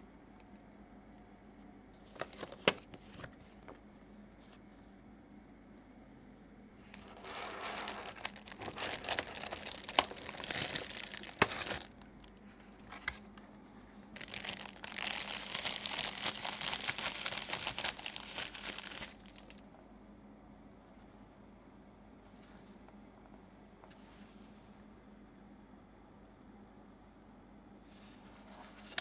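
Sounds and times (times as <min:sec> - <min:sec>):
plastic bag crinkling: 0:06.8 - 0:13.1, 0:14.1 - 0:19.6.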